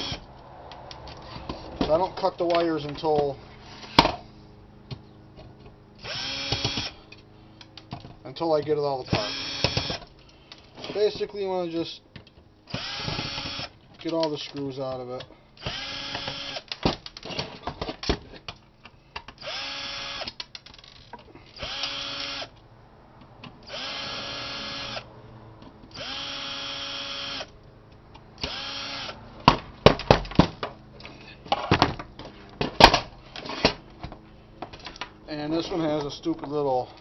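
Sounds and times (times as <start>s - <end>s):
cordless drill whining: 0.0s - 0.3s, 6.0s - 7.0s, 9.1s - 10.0s, 12.7s - 13.8s, 15.6s - 16.8s, 19.4s - 22.5s, 23.6s - 25.1s, 25.9s - 27.5s, 28.4s - 29.2s
metal case knocks and clatter: 31.5s - 34.2s.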